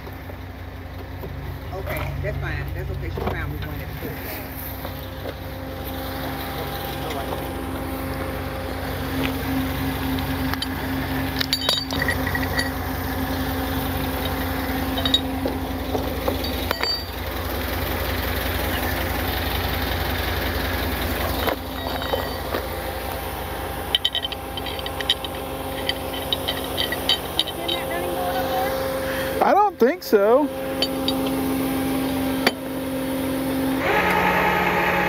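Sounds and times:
vehicle engine idling: 0.0 - 35.0
light metallic clinks: 11.4 - 12.9, 14.2 - 15.6, 16.2 - 17.3, 21.2 - 22.8, 23.8 - 28.2.

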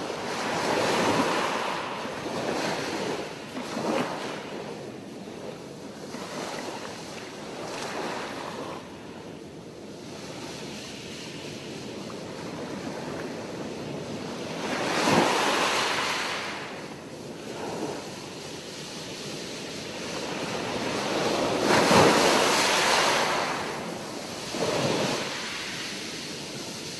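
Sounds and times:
ocean waves breaking: 0.0 - 9.2, 10.0 - 26.9.

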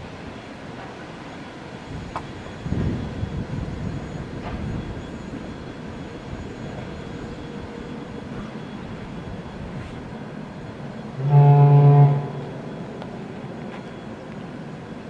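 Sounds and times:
distant freight train rumble: 0.0 - 15.0
locomotive horn blast: 11.2 - 12.6.

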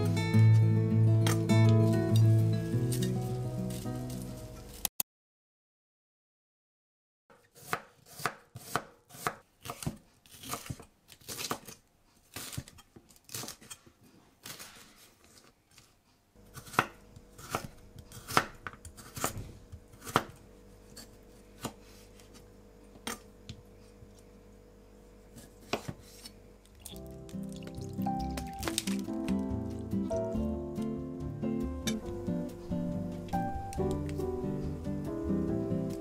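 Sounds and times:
knife chopping on wooden board: 7.3 - 11.7, 16.5 - 20.4, 21.0 - 21.8, 25.4 - 26.3.

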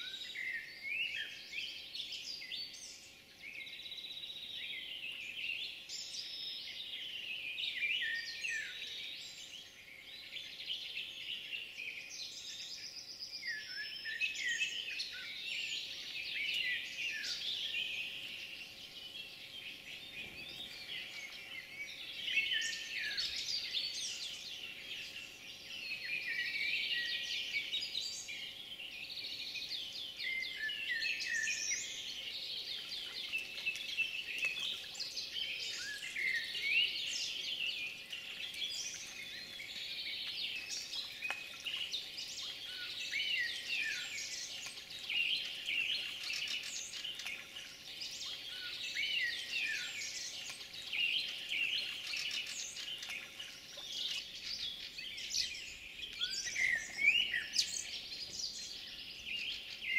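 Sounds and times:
songbirds chirping: 0.0 - 59.9.

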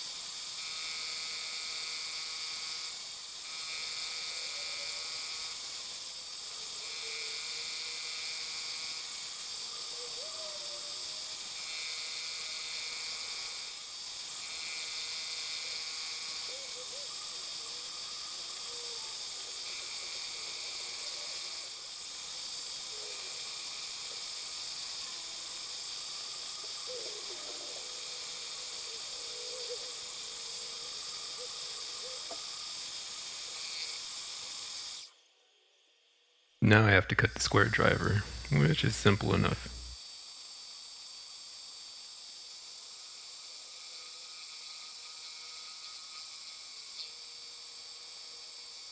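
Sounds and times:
cutting tone: 36.6 - 40.0.

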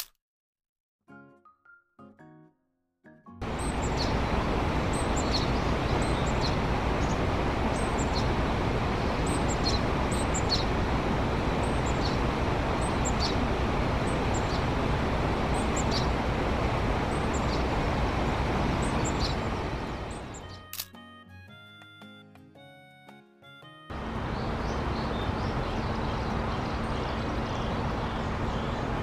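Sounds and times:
loud rushing background noise: 3.4 - 20.4, 23.9 - 29.0.

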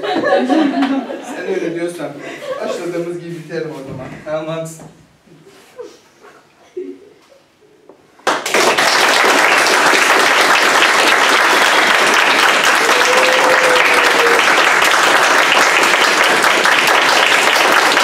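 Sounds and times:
audience applauding: 8.2 - 18.0.

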